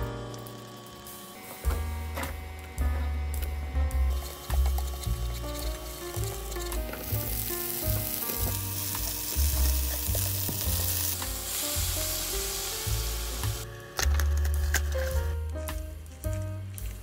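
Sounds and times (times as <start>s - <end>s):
background music with bass line: 1.6s - 17.0s
food sizzling in a frying pan: 4.1s - 13.7s.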